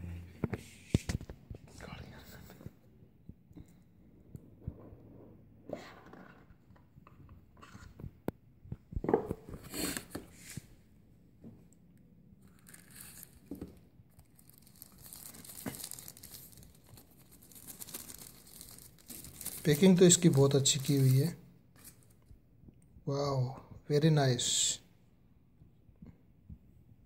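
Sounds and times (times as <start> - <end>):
paper wrapping rustling: 12.4 - 22.2.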